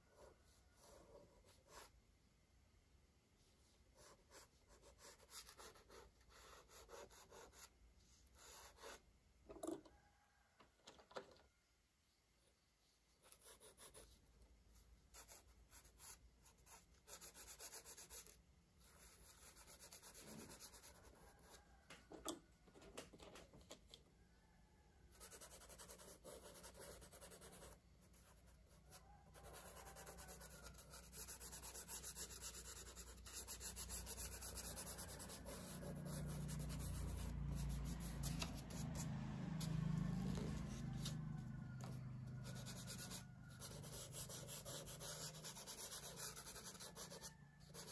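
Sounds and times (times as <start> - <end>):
crayon rubbing on paper: 42.5 - 47.9.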